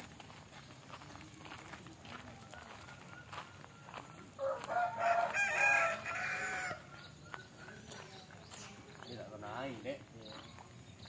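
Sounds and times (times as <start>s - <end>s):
rooster crowing: 2.4s - 7.0s.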